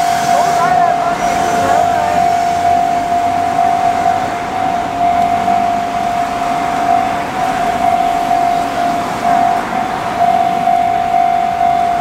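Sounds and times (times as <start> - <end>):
cars passing: 0.0 - 12.0
level crossing warning bell: 0.0 - 12.0.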